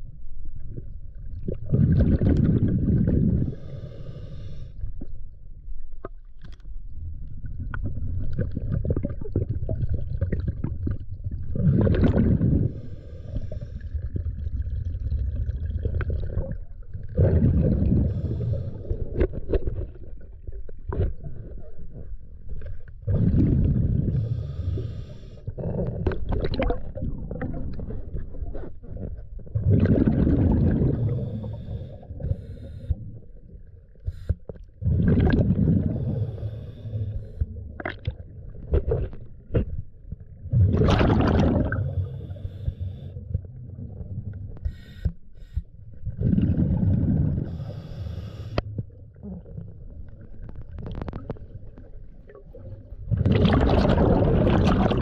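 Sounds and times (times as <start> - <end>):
diver exhaling bubbles: 1.4 - 4.2, 7.8 - 20.3, 23.0 - 32.4, 34.8 - 39.2, 40.5 - 42.7, 46.1 - 48.6, 49.2 - 55.0
regulator breathing underwater: 3.0 - 4.9, 12.1 - 14.1, 17.6 - 19.4, 23.2 - 26.1, 30.6 - 33.3, 35.6 - 37.6, 41.6 - 43.4, 44.6 - 48.7.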